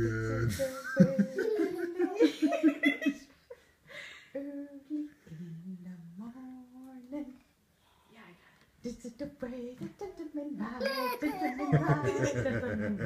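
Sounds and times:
person humming: 0.0s - 2.2s, 4.4s - 7.1s
person laughing: 0.5s - 3.2s, 11.2s - 13.0s.

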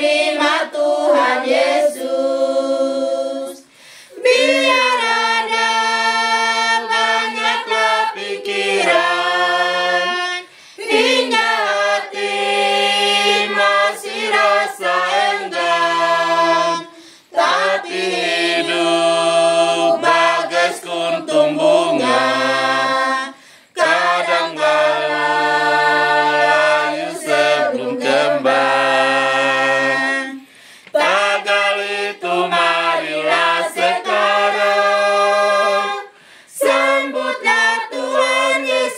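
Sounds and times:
women singing a hymn unaccompanied: 0.0s - 38.9s.

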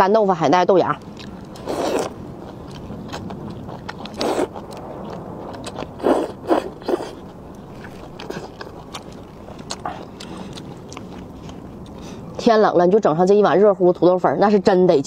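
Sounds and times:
slurping noodles: 1.6s - 2.1s, 4.1s - 4.6s, 6.0s - 9.0s.

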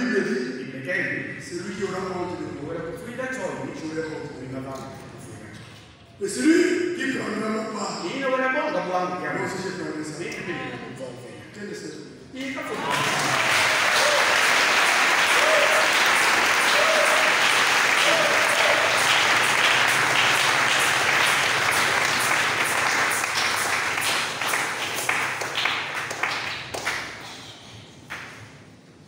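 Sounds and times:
congregation applauding: 12.5s - 28.6s.

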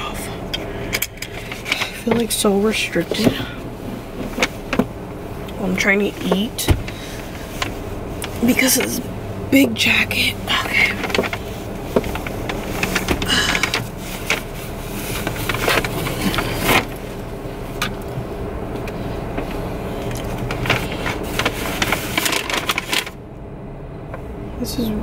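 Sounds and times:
steady low hum: 0.0s - 25.0s
paper bag being handled: 10.4s - 17.2s, 20.3s - 23.2s.

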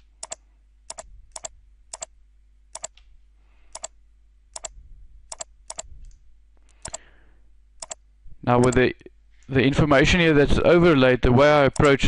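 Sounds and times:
computer mouse clicking: 0.0s - 2.1s, 2.7s - 3.1s, 3.7s - 7.1s, 7.8s - 8.0s, 8.6s - 8.8s, 11.8s - 12.0s
low steady hum: 0.0s - 12.0s.

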